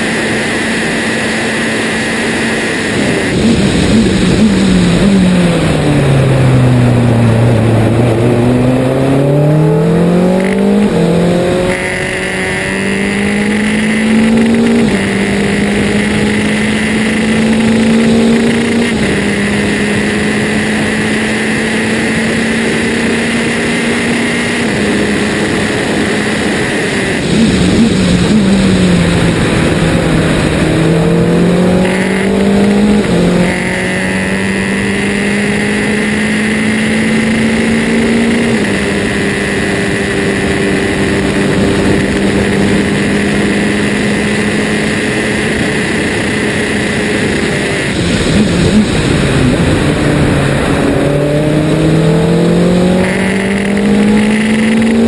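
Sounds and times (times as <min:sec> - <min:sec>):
engine blipping on downshifts: 0:00.0 - 0:55.0
race car engine at full throttle: 0:00.0 - 0:55.0
wind rush over car: 0:02.6 - 0:08.4, 0:24.2 - 0:33.7, 0:44.4 - 0:54.8.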